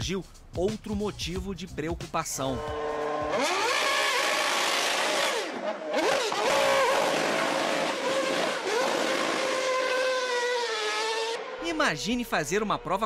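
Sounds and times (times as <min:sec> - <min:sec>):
race car engine revving: 0:02.6 - 0:11.8.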